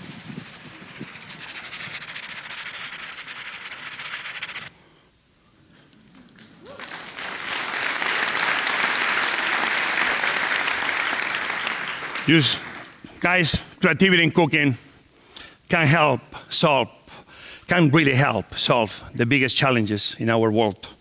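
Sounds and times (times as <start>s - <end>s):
steady hiss: 0.0s - 6.4s
audience applauding: 6.4s - 13.0s.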